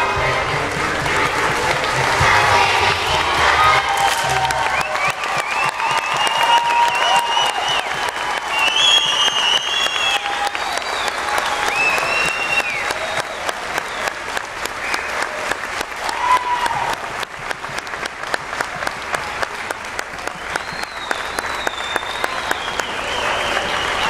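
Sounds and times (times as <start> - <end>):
audience clapping: 0.0 - 24.0
cheers and whistles: 3.6 - 17.1, 20.2 - 24.0.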